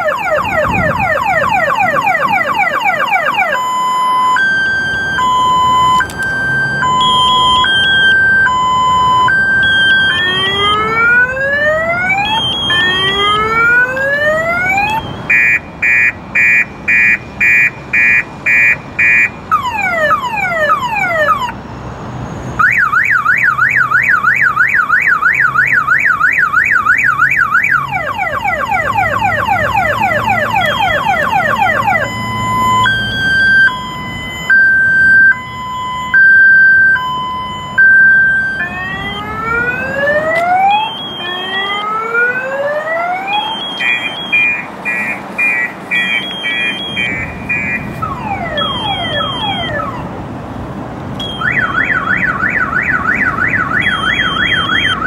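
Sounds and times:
car alarm siren cycling tones: 0.0s - 21.6s, 22.6s - 50.1s, 51.2s - 55.0s.

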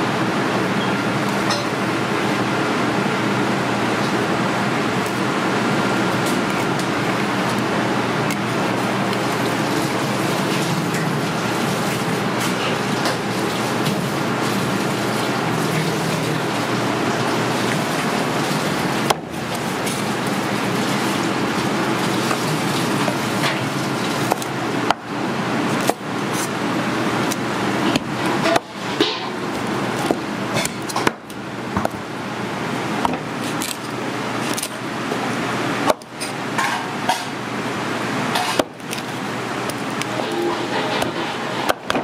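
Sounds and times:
kitchen roar: 0.0s - 42.0s
cleaver cutting fish: 17.7s - 31.4s.

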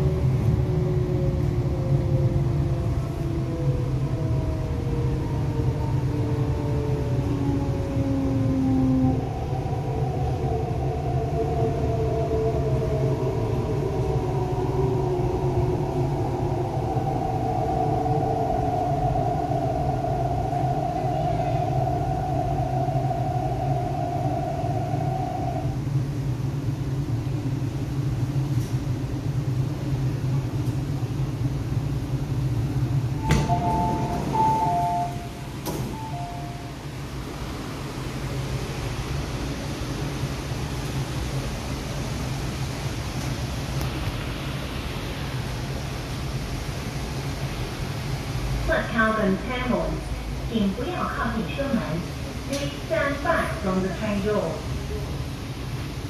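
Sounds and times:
train rumble: 0.0s - 56.0s
two-note electronic beeps: 33.3s - 36.7s.

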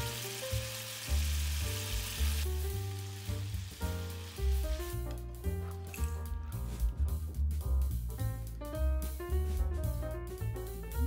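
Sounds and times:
meat sizzling in a frying pan: 0.0s - 5.2s
background music with bass: 0.0s - 11.0s.

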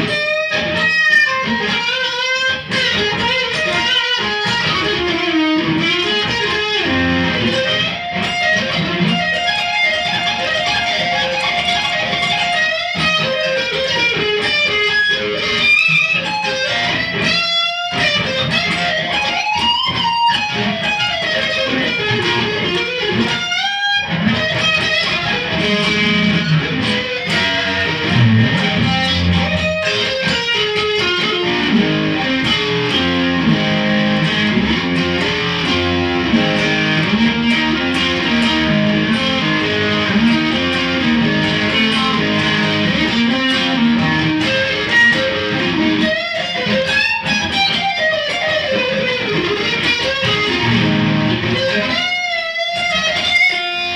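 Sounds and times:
electric guitar playing: 0.0s - 53.9s.

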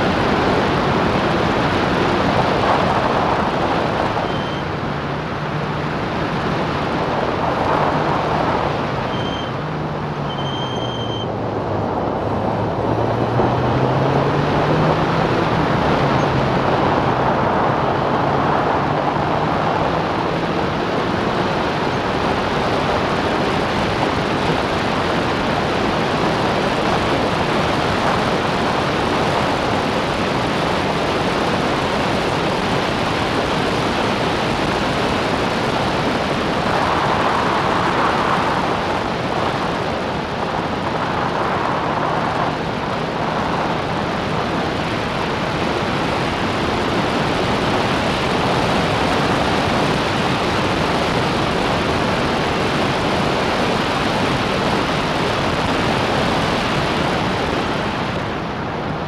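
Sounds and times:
race car engine: 0.0s - 59.0s
wind and road rush: 0.0s - 59.0s
brief high-pitched tones: 9.1s - 9.5s, 10.3s - 11.3s.

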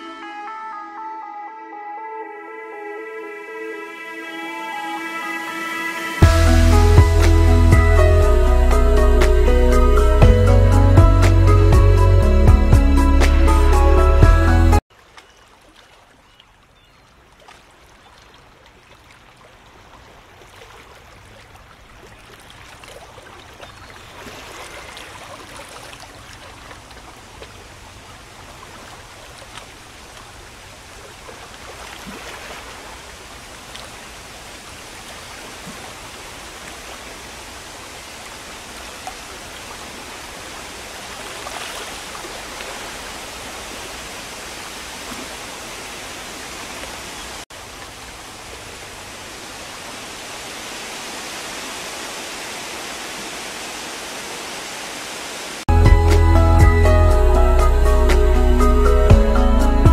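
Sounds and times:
falling water splashing: 17.1s - 55.7s.

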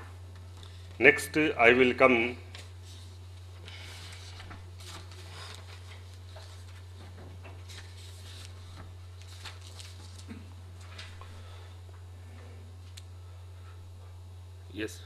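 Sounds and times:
paper sheets rustling: 2.5s - 11.6s.

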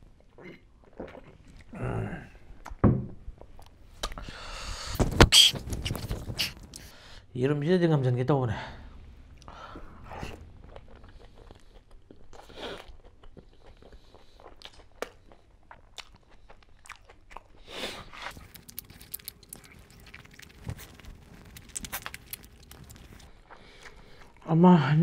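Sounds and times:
wet chewing and mouth clicks: 0.2s - 1.8s, 9.3s - 24.5s.

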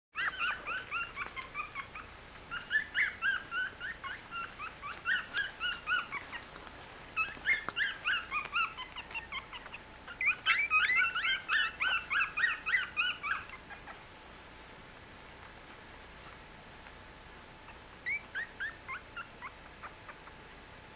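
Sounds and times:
puppies squeaking and whimpering: 0.2s - 14.1s, 17.6s - 20.4s.

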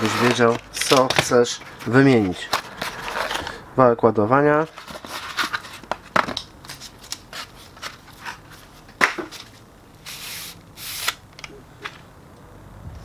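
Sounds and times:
cardboard rustling and scraping: 0.0s - 3.6s, 4.6s - 10.4s.

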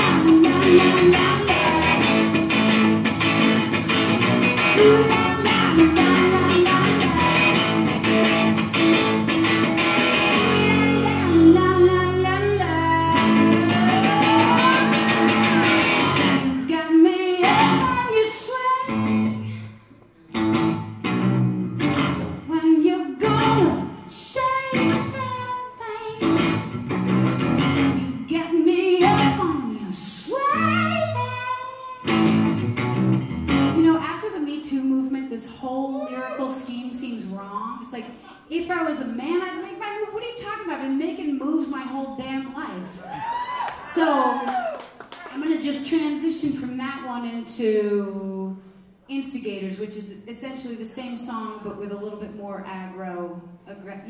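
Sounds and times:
amplified electric guitar playing: 0.0s - 16.7s, 17.4s - 18.1s, 20.3s - 22.5s, 26.1s - 28.3s, 32.0s - 34.0s.

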